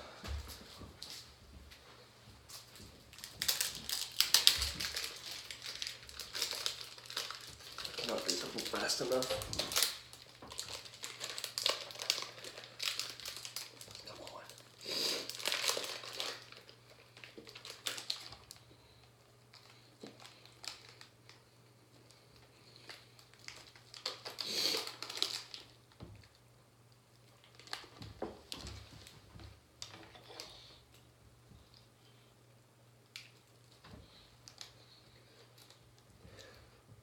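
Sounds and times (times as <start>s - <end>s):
snack wrapper crinkling: 3.1s - 26.4s, 27.1s - 29.0s, 33.0s - 36.6s.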